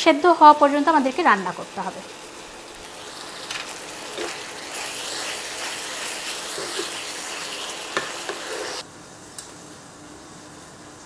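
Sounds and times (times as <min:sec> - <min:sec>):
meat sizzling in a frying pan: 0:00.1 - 0:08.8
wooden spatula scraping a pan: 0:04.1 - 0:08.8.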